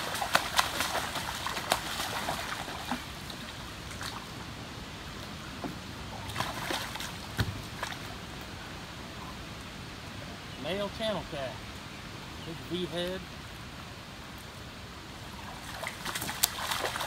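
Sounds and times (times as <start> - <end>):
fish splashing at the surface: 0.0 - 4.2, 6.3 - 8.0, 15.5 - 17.0.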